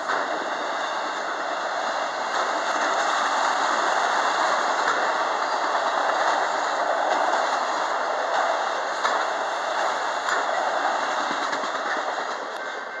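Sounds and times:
steel wheels rolling on rails: 0.0 - 13.0.

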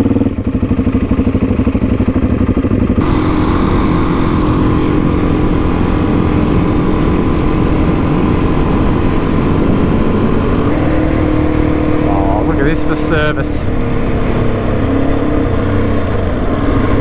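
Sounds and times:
dirt bike engine pulling away: 2.7 - 17.0.

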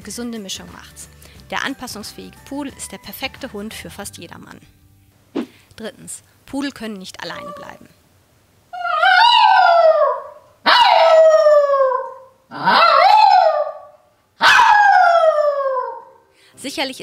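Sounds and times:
dog howling: 8.8 - 16.2.

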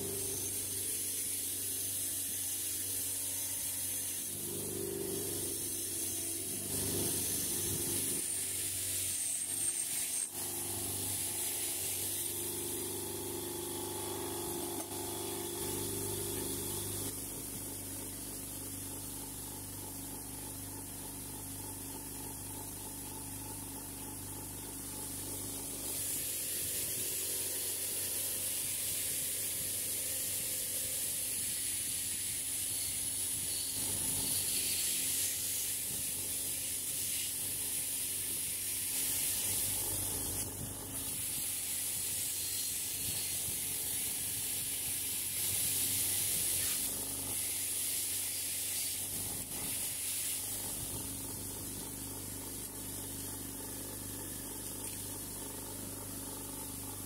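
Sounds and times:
bench grinder motor hum: 0.0 - 47.8
wire brush scratching hiss: 5.1 - 12.4, 25.6 - 56.8.

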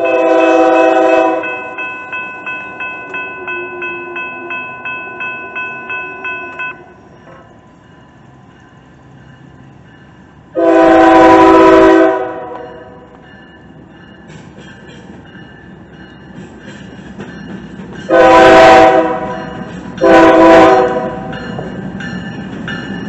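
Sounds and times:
locomotive horn blast: 0.0 - 1.8, 10.5 - 13.1, 18.1 - 21.3
crossing bell ringing: 0.0 - 23.0.

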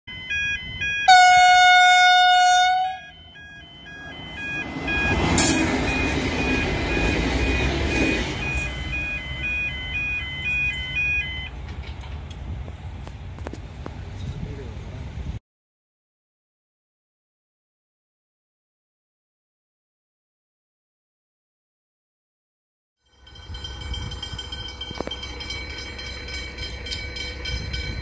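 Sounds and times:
level crossing bells ringing: 0.1 - 11.5, 23.1 - 28.0
diesel railcar passing: 0.1 - 15.4, 23.1 - 28.0
train horn blast: 1.1 - 3.1.

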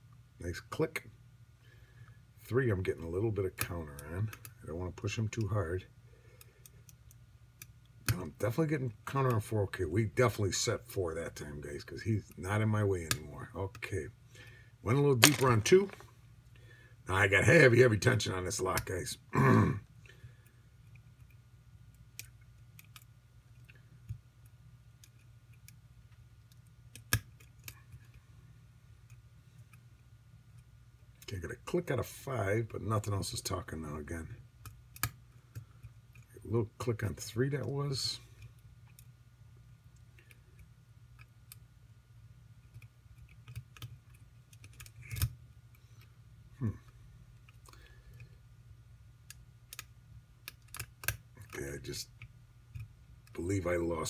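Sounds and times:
lock pick ticking and clicking: 42.7 - 45.3, 49.2 - 51.2.

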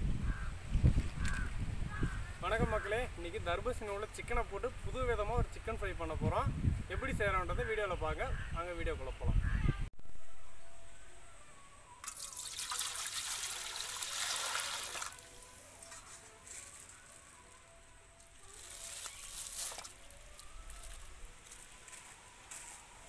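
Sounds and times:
chicken pieces splashing into water: 12.0 - 15.2
water pouring into metal pot: 12.0 - 15.3.

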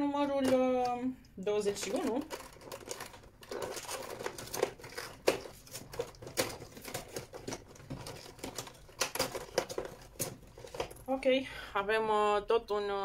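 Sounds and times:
packaging being handled: 1.7 - 11.1.

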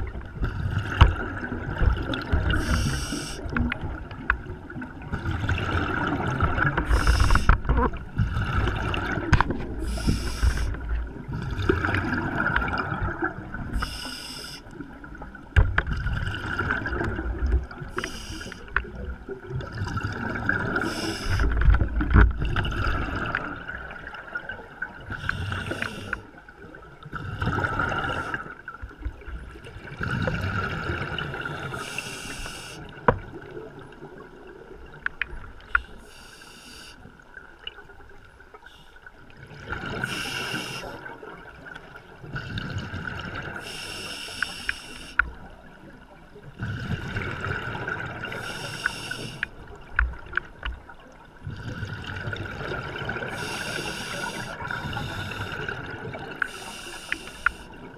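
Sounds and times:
regulator hissing inhale: 2.5 - 3.5, 6.9 - 7.6, 9.8 - 10.9, 13.7 - 14.7, 17.9 - 18.7, 20.8 - 21.6, 25.2 - 26.3, 31.6 - 32.9, 35.7 - 37.1, 40.0 - 41.0, 43.6 - 45.2, 48.3 - 49.5, 53.3 - 55.8, 56.4 - 57.8.

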